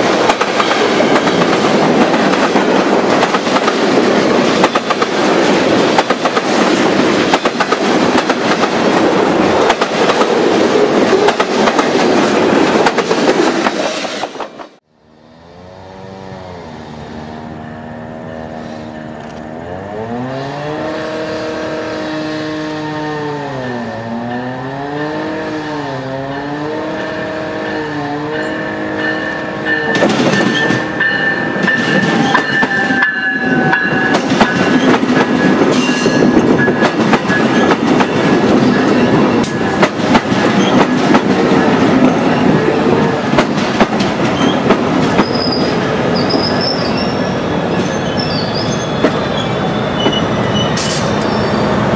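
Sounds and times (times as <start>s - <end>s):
train engine drone: 0.0s - 51.9s
train passing with loud rumble: 0.0s - 51.9s
faint high tone from train: 0.4s - 1.7s, 27.1s - 39.9s, 44.4s - 51.9s
braking wheels squealing: 44.3s - 51.8s.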